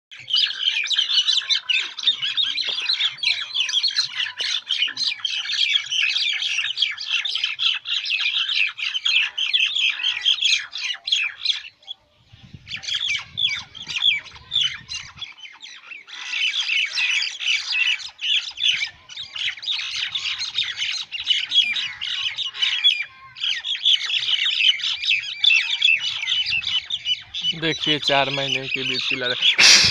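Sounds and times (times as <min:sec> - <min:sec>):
birds squawking and screeching: 0:00.1 - 0:29.9.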